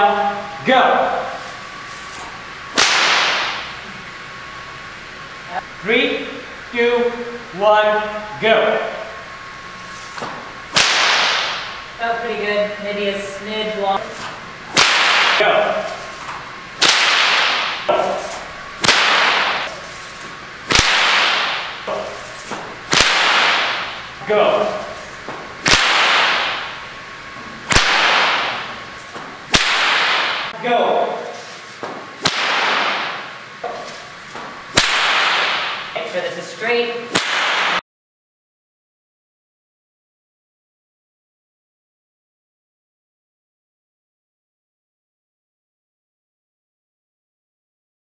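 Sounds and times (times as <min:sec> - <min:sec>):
bullwhip cracking: 0:01.2 - 0:03.8, 0:09.9 - 0:11.8, 0:14.0 - 0:26.8, 0:27.6 - 0:37.8.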